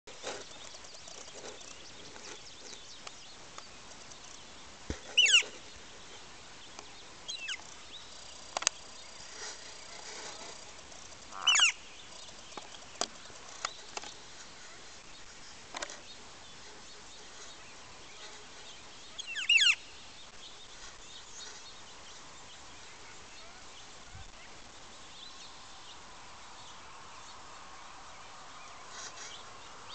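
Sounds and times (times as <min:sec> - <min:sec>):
sharp bird ticks: 0:00.1 - 0:05.6, 0:06.7 - 0:09.3, 0:10.6 - 0:14.2
softer bird calls: 0:00.2 - 0:21.8
bird calls sweeping downward: 0:05.1 - 0:05.6, 0:11.3 - 0:11.8.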